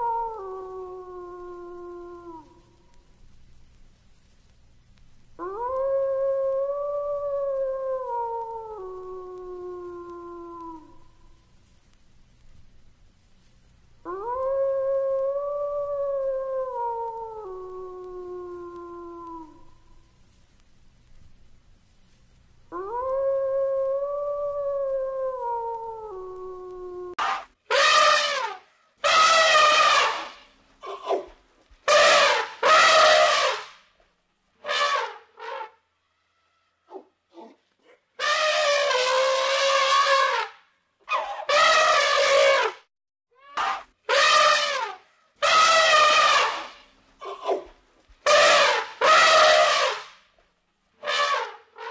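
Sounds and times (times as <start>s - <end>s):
wolf howling: 0.0s - 2.6s, 5.4s - 11.0s, 14.0s - 19.7s, 22.7s - 27.2s
elephant trumpeting: 27.2s - 31.3s, 31.9s - 33.7s, 38.2s - 40.5s, 41.1s - 42.8s, 43.4s - 47.6s, 48.3s - 50.1s, 51.0s - 51.9s.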